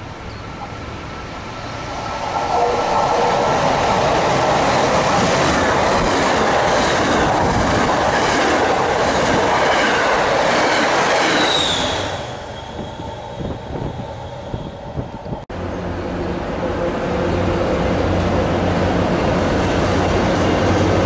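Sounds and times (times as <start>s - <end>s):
train wheel and rail noise: 0.0s - 21.0s
high wheel squeal: 0.3s - 5.2s, 11.3s - 15.1s.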